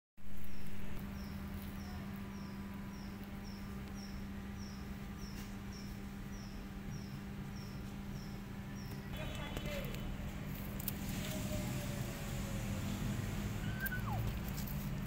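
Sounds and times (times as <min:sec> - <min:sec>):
steady low hum: 0:00.2 - 0:15.0
bird chirping: 0:00.4 - 0:10.1, 0:12.8 - 0:14.7.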